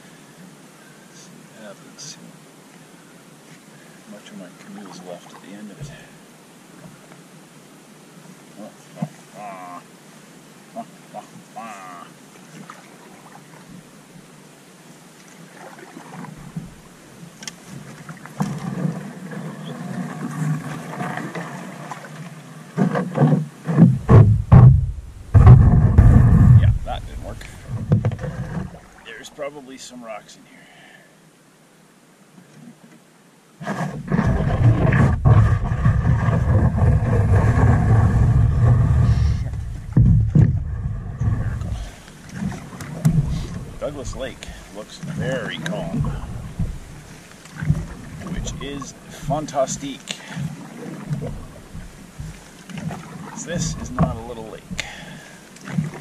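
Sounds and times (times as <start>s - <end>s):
paddle in water: 0.0s - 56.0s
canoe hull scraping on rocks: 17.6s - 29.3s, 33.6s - 56.0s
hull knocking against stone: 22.8s - 28.8s, 39.4s - 41.7s.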